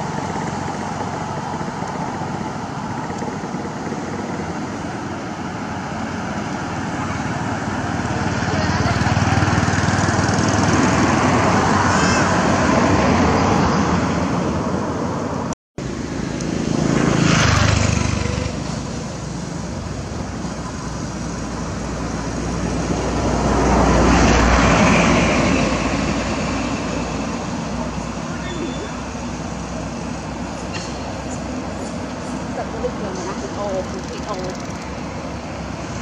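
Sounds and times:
traffic rumble: 0.0s - 36.0s.

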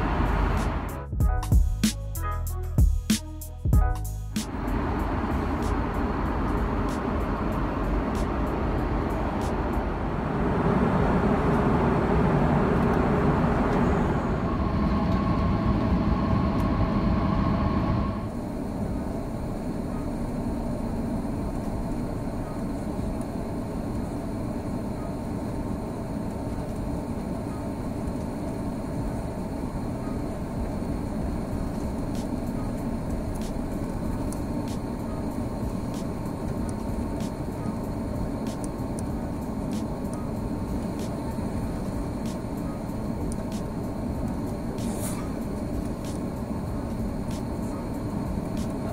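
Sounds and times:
aircraft cabin engine rumble: 0.0s - 1.0s, 4.4s - 48.9s.

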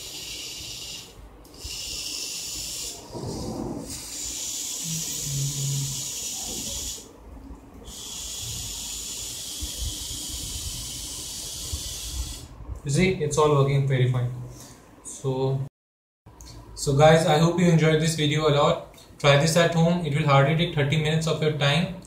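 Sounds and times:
small gear motors whirring: 3.8s - 7.1s, 7.9s - 12.5s.

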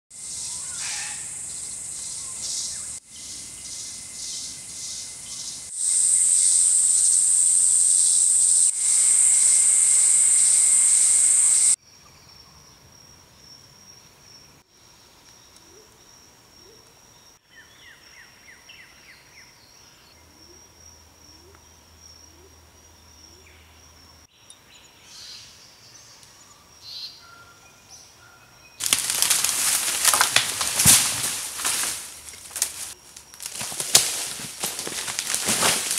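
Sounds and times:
pulsing insect chorus: 0.2s - 11.8s, 28.8s - 35.9s
steady high insect whine: 0.2s - 24.3s, 28.8s - 35.9s
sticks and thatch cracking: 28.8s - 35.9s.

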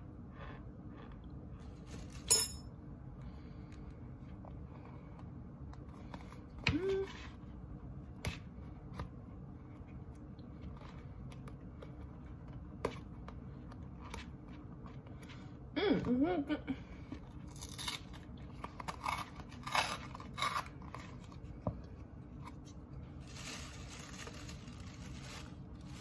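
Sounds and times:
metal spoon clinking down: 2.3s - 2.6s.

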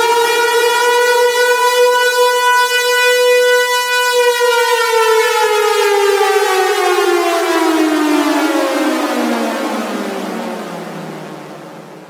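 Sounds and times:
siren wail falling in pitch: 0.0s - 12.0s.

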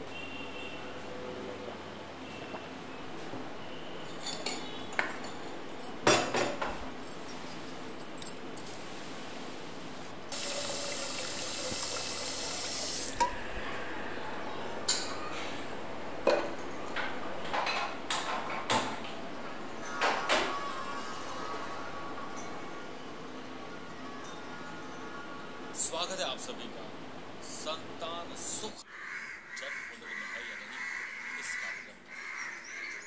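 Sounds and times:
tap running: 10.3s - 13.3s.

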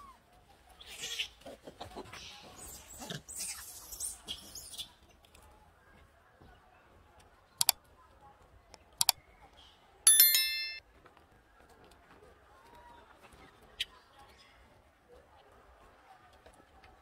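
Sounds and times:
bright bell chime: 10.1s - 10.8s.

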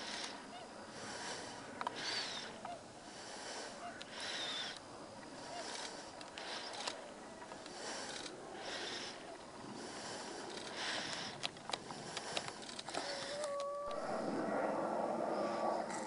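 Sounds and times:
person breathing softly: 0.0s - 13.6s
sharp clicks: 5.6s - 8.3s, 10.5s - 14.0s.

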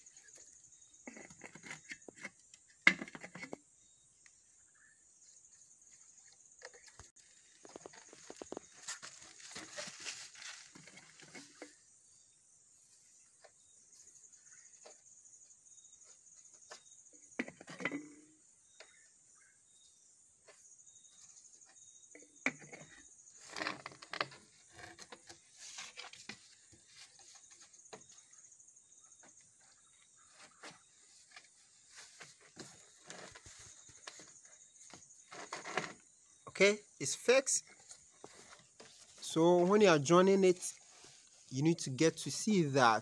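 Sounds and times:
plastic pipe knocks and scrapes: 1.0s - 3.6s, 6.4s - 11.8s, 16.5s - 19.0s, 21.8s - 28.2s.

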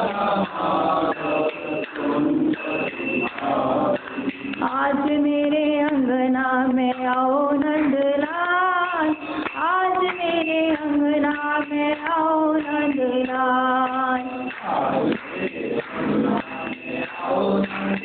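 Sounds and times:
woman singing into a microphone: 4.6s - 14.5s.

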